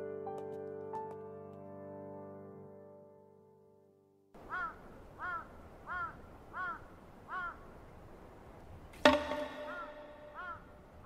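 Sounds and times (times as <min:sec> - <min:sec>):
crow cawing: 0:04.4 - 0:07.6, 0:09.1 - 0:10.8
sharp ringing knock: 0:09.0 - 0:10.4.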